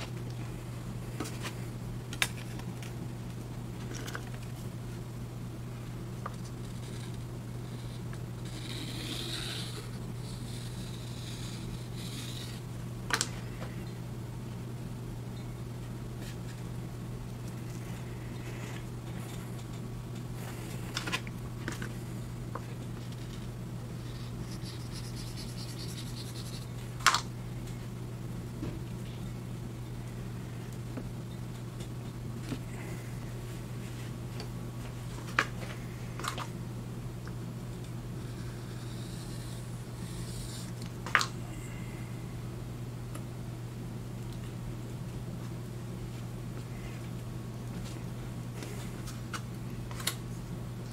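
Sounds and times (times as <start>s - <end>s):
steady low hum: 0.0s - 50.9s.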